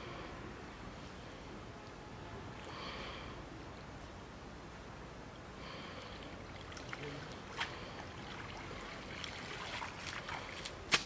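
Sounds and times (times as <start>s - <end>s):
water splashing and trickling: 5.8s - 11.0s
person wading through water: 6.1s - 11.0s.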